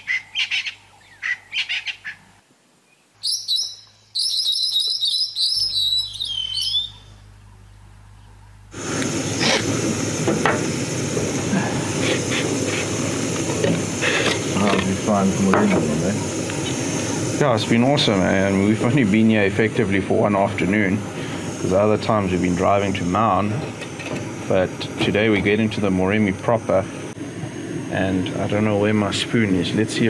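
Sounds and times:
bird chorus: 0:00.0 - 0:02.2, 0:02.9 - 0:07.2
distant generator hum: 0:03.2 - 0:30.0
camping stove burner hissing: 0:08.7 - 0:30.0.

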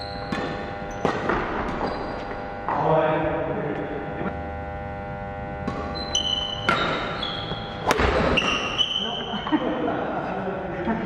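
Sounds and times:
sneaker squeaks on wooden floor: 0:00.0 - 0:02.5, 0:05.7 - 0:09.3
steady hum: 0:00.0 - 0:11.0.

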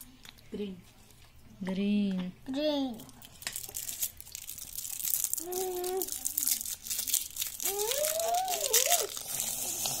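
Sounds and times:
child's voice: 0:02.5 - 0:03.1, 0:05.4 - 0:06.2, 0:07.6 - 0:09.2
foil wrapper crinkling and tearing: 0:03.2 - 0:10.0.

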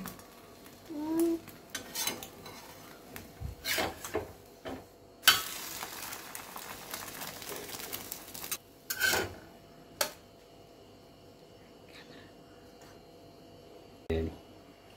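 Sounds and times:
steady sizzle: 0:00.0 - 0:10.2
spatula scraping frying pan: 0:01.7 - 0:02.9, 0:03.6 - 0:04.2, 0:08.9 - 0:09.4.

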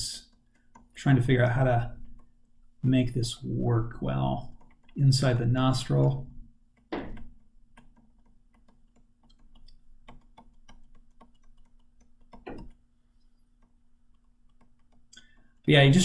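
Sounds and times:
faint steady hum: 0:00.0 - 0:16.0
stylus tapping on drawing tablet: 0:06.8 - 0:08.0, 0:08.6 - 0:12.8.

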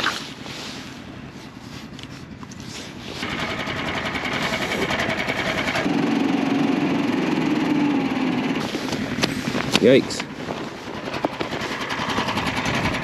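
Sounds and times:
small gasoline engine running: 0:02.6 - 0:13.0.

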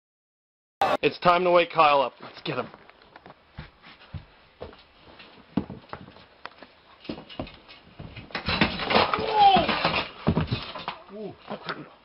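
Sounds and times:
thumps on metal bunk bed: 0:07.1 - 0:10.9.

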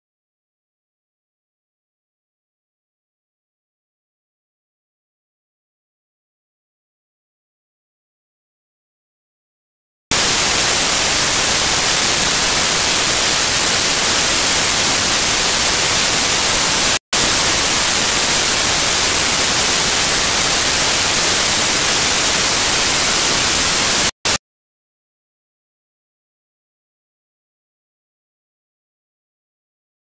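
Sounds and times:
loud white-noise hiss: 0:10.1 - 0:24.4.

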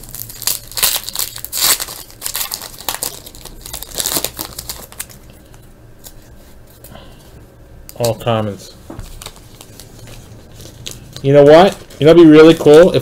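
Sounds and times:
foil wrapper crinkling and tearing: 0:00.0 - 0:06.2, 0:09.1 - 0:13.0.

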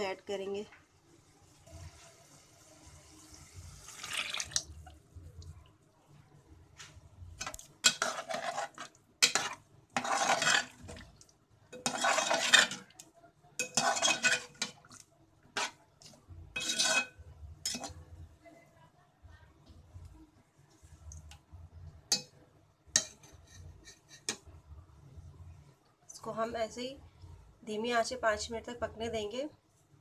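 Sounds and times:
water pouring into a pot: 0:01.5 - 0:05.0
steel spoon scraping metal pot: 0:07.4 - 0:11.0, 0:11.7 - 0:13.0, 0:13.6 - 0:14.9, 0:15.6 - 0:15.8, 0:16.6 - 0:18.0, 0:22.9 - 0:24.4
gravy sloshing: 0:07.4 - 0:12.9.

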